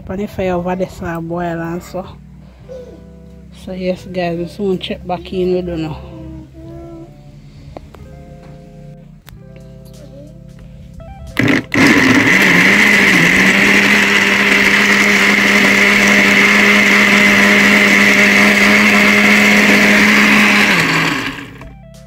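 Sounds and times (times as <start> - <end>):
blender motor whine: 11.4 - 21.7.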